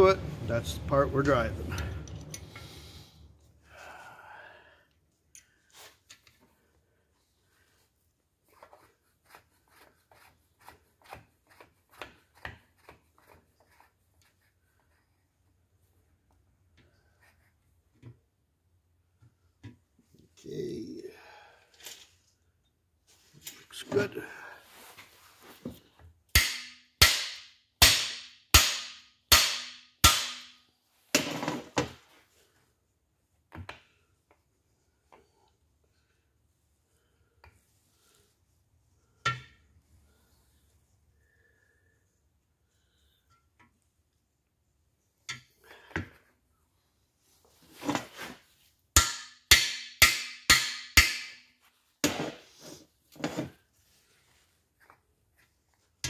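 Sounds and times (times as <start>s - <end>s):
hammer striking metal bar: 26.3s - 30.6s, 49.0s - 52.2s.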